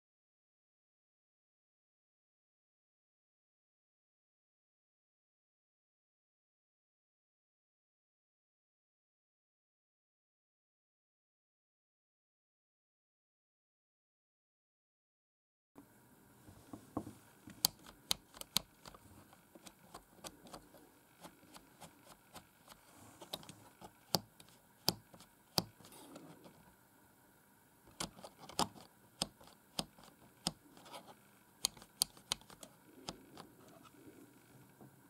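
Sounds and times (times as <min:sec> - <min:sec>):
keyboard key clicks: 0:17.6 - 0:19.0, 0:31.6 - 0:33.5.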